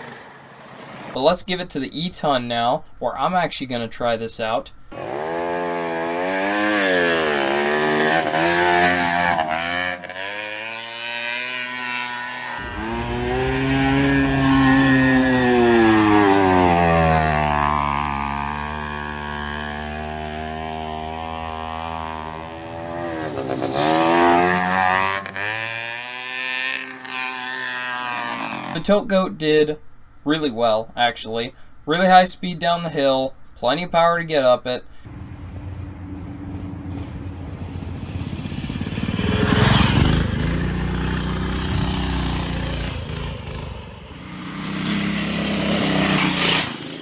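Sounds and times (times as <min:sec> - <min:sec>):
small two-stroke engine revving: 0:04.9 - 0:28.8, 0:35.1 - 0:47.0.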